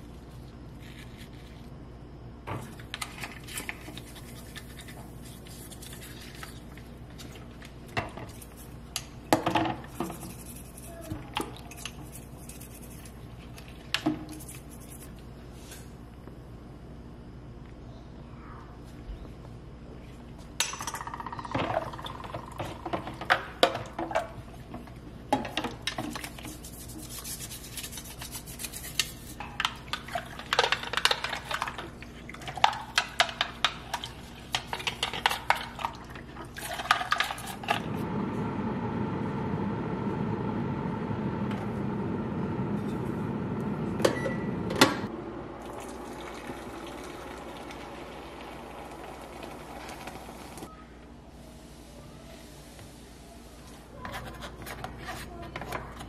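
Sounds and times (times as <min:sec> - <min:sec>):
brush scrubbing: 0:26.2 - 0:29.4.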